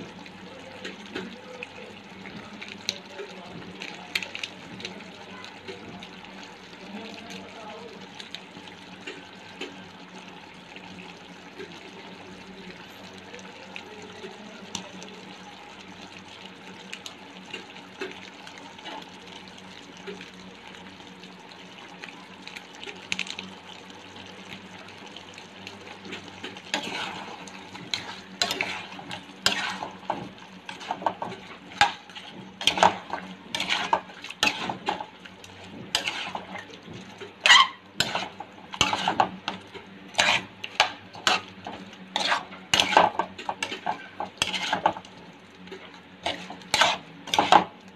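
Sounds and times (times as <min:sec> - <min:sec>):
chicken sizzling in pan: 0:00.0 - 0:47.9
metal utensil scraping pan: 0:26.4 - 0:35.1, 0:35.7 - 0:36.7, 0:37.4 - 0:45.0, 0:46.2 - 0:47.7.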